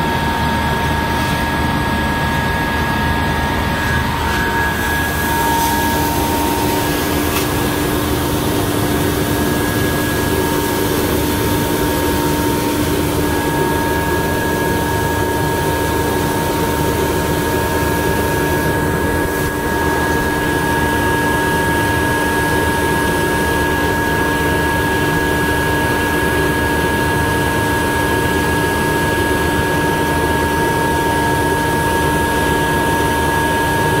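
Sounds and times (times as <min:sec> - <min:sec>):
finishing machine running: 0:00.7 - 0:22.6.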